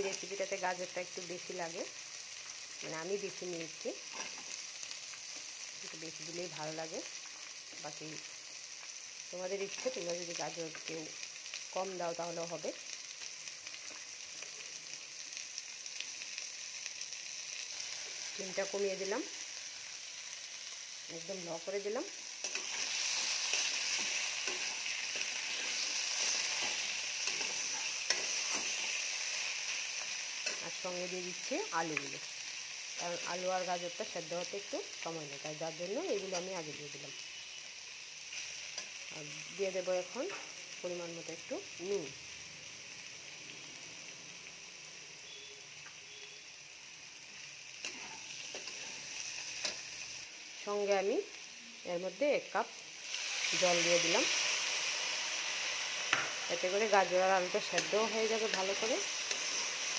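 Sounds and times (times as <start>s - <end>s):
food sizzling in oil: 0.0s - 59.9s
spatula scraping wok: 4.0s - 4.6s, 21.6s - 30.9s, 47.8s - 50.2s, 55.8s - 59.9s.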